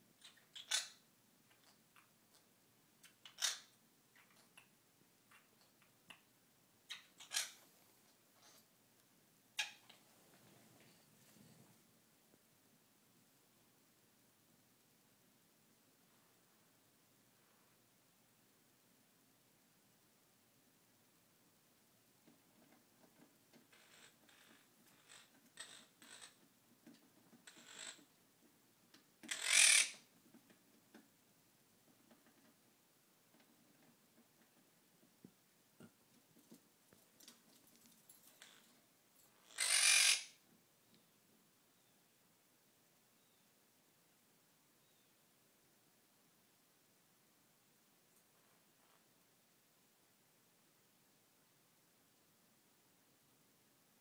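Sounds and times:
parrot squawk: 0:00.2 - 0:01.0, 0:06.9 - 0:07.6, 0:09.6 - 0:09.9, 0:29.3 - 0:30.0, 0:39.4 - 0:40.4
parrot soft scratchy sounds: 0:06.9 - 0:08.7.

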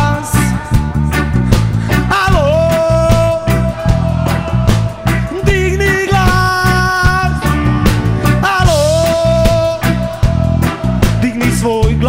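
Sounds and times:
live rock band playing: 0:00.0 - 0:12.0.

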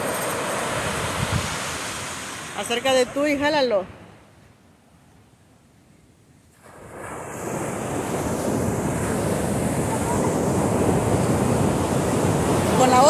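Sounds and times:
ocean surf breaking: 0:00.0 - 0:04.0, 0:06.6 - 0:13.0.

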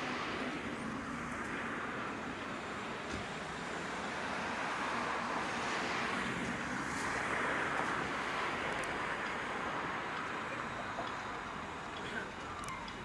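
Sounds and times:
steam locomotive moving slowly: 0:00.0 - 0:13.0.

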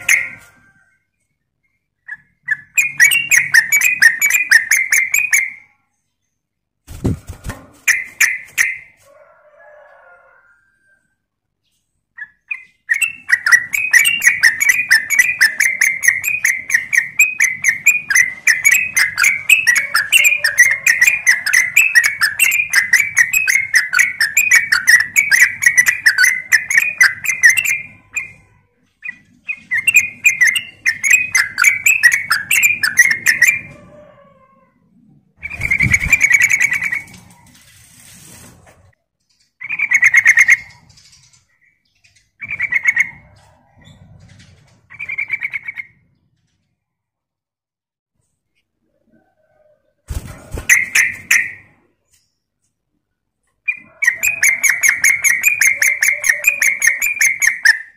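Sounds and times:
bird chattering song: 0:01.5 - 0:09.0, 0:11.6 - 0:33.7, 0:35.4 - 0:37.2, 0:39.3 - 0:44.0, 0:44.9 - 0:46.1, 0:53.6 - 0:57.9.

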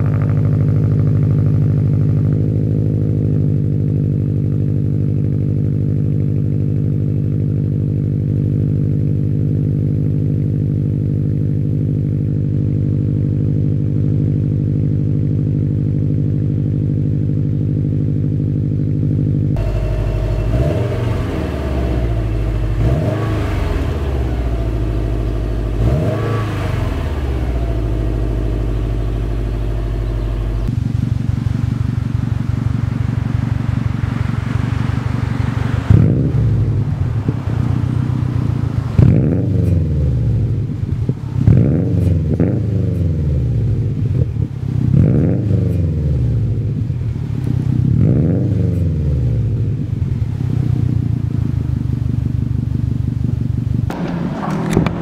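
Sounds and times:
car engine idling: 0:00.0 - 0:55.0
car engine revving: 0:19.4 - 0:55.0.

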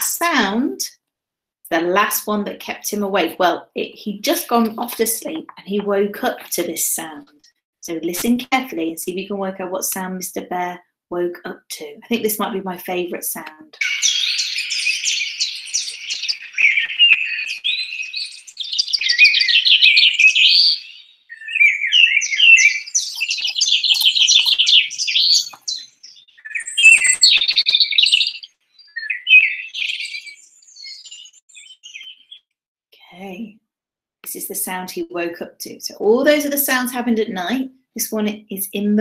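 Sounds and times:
songbirds chirping and trilling: 0:13.8 - 0:32.5.

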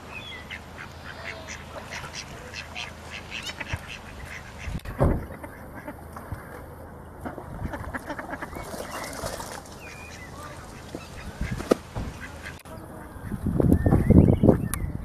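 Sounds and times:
ducks quacking: 0:00.0 - 0:13.6.

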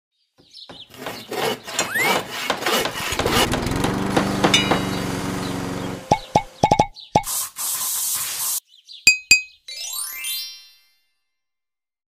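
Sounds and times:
motor-like hum: 0:03.1 - 0:06.7.

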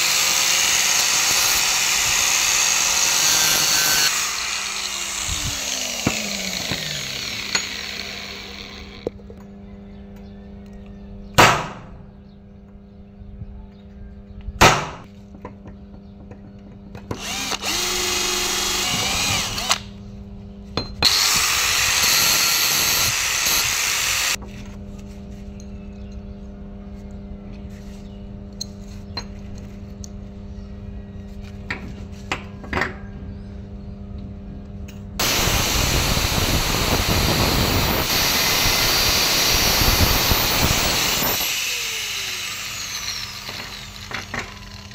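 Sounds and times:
angle grinder cutting metal: 0:00.0 - 0:09.1, 0:17.2 - 0:19.9, 0:21.0 - 0:24.4, 0:35.2 - 0:44.9.

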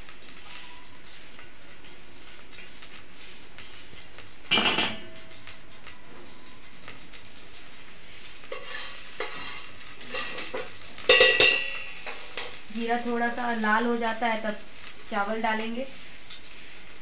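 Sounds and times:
seeds sizzling in hot oil: 0:00.0 - 0:17.0
spoon clinking on metal pot: 0:08.5 - 0:12.6
spoon scraping and tapping: 0:08.5 - 0:12.6.

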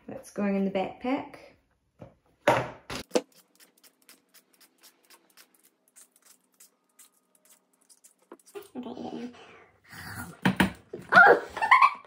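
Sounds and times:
objects knocking on counter: 0:02.0 - 0:03.1
peeler scraping cucumber: 0:03.1 - 0:08.8.

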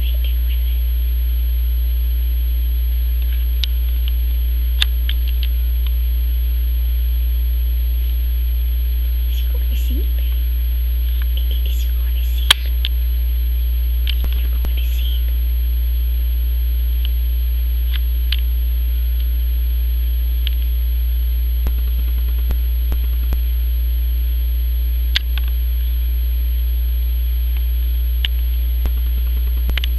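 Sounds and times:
low electrical hum: 0:00.0 - 0:29.9
faint clicks and ticks: 0:27.6 - 0:29.9.

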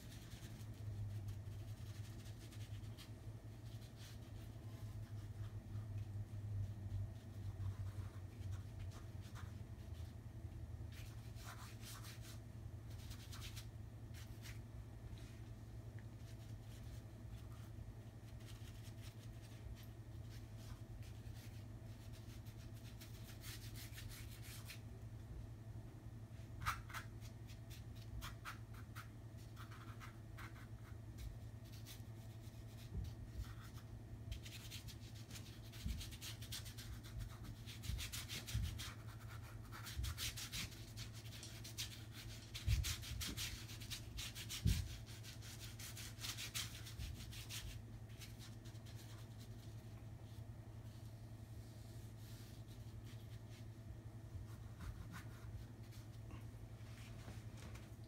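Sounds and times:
paintbrush scrubbing canvas: 0:00.0 - 0:10.2, 0:26.6 - 0:53.8, 0:54.4 - 0:56.2
steady low hum: 0:00.0 - 0:58.0.

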